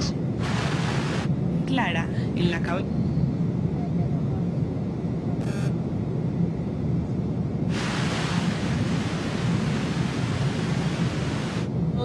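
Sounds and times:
radio static hiss: 0.0s - 1.3s, 7.7s - 11.7s
low steady drone: 0.0s - 12.0s.

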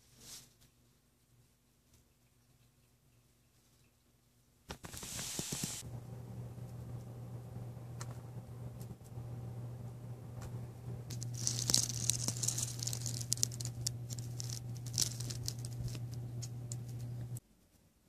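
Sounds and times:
candle flame crackling: 4.7s - 17.4s
steady low hum: 4.8s - 17.4s.

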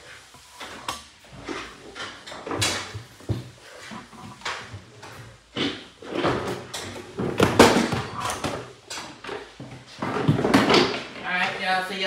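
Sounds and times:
dishes knocking and banging: 4.0s - 11.2s.

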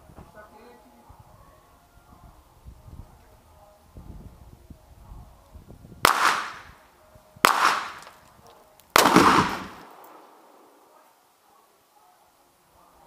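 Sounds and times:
gunshots: 6.0s - 6.8s, 7.4s - 8.2s, 8.9s - 10.8s
target exploding with deep bang: 9.0s - 10.3s.

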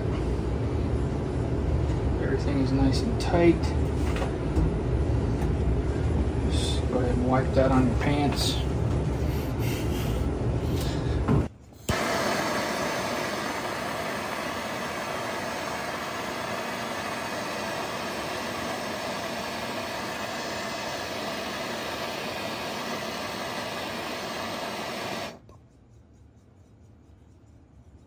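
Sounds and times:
gas torch flame hissing: 9.2s - 25.4s.

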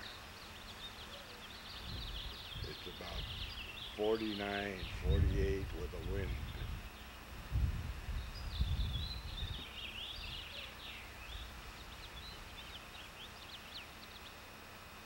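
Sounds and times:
small birds chirping: 0.0s - 15.0s
wind rumbling on microphone: 1.8s - 10.6s.

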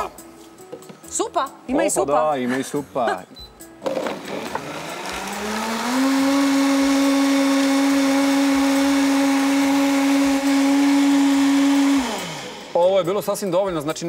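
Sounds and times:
blender motor whining: 3.8s - 12.8s.

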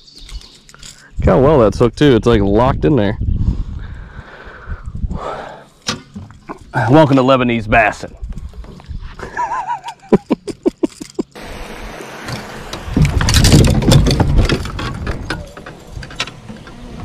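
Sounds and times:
body and rods clattering in boat: 12.4s - 17.0s.

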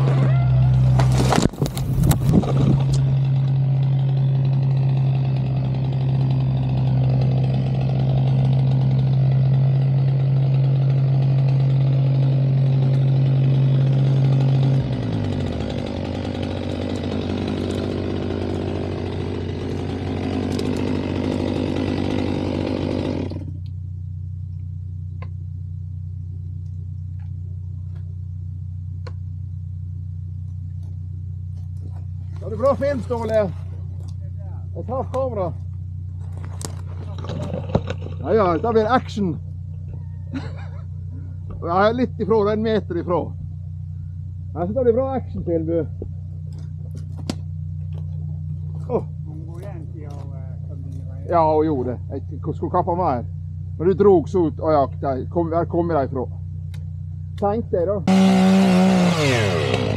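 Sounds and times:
chainsaw cutting: 0.0s - 23.7s, 31.8s - 34.2s, 34.8s - 39.4s, 46.4s - 51.5s, 58.1s - 59.9s
low engine hum: 0.0s - 59.9s.

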